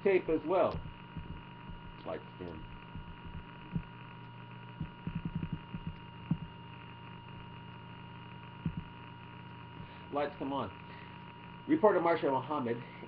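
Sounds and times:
electrical hum with high whine: 0.0 - 13.0
soft low knocks: 0.7 - 4.0, 4.8 - 6.6, 8.6 - 8.9.

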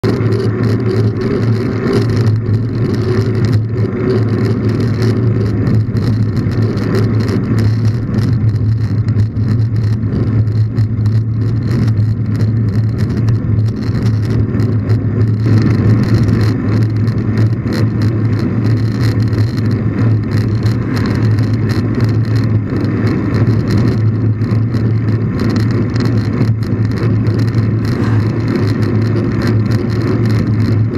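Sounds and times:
bike tyre rolling on asphalt: 0.0 - 30.9
wind rumble on microphone: 0.0 - 30.9.

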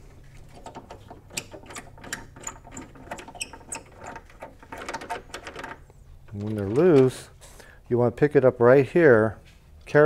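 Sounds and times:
thumb nuts unscrewing clicks: 0.5 - 7.1.

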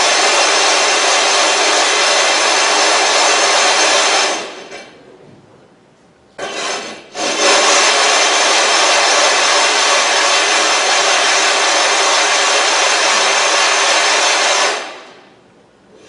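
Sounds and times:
short stone scrape: 6.4 - 7.9
stone grinding on grit: 6.4 - 11.4.

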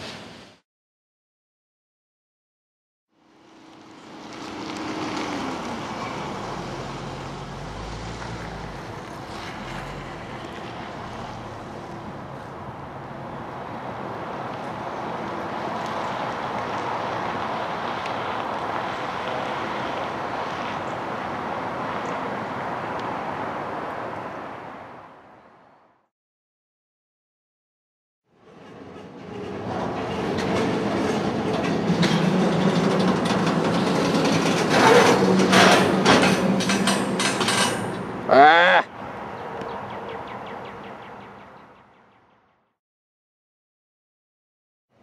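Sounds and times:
train wheels clattering on rail: 28.4 - 38.2.

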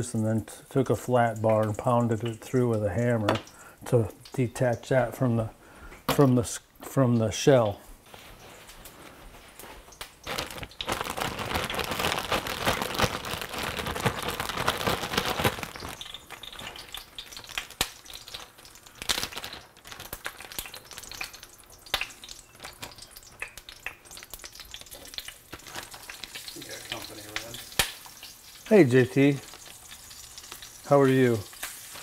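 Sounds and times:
hot oil sizzling and crackling: 0.0 - 32.0
plastic bag rustling: 8.0 - 21.1, 25.0 - 27.6.

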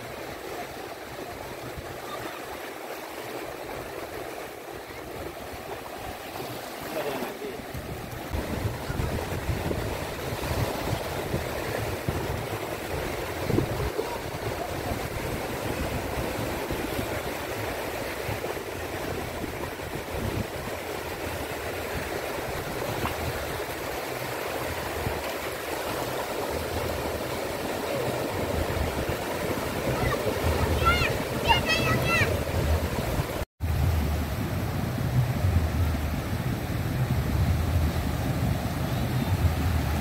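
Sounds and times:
small waves breaking on shore: 0.0 - 40.0
wind rumbling on microphone: 7.6 - 40.0.

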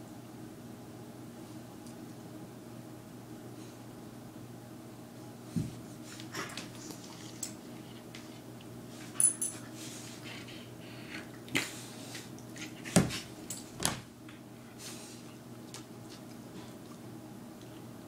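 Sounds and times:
dog bumping and scraping on floorboards: 12.6 - 14.1.

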